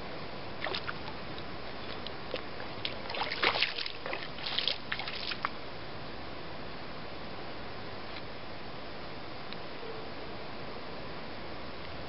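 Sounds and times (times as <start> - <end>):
fish splashing in water: 2.8 - 5.5.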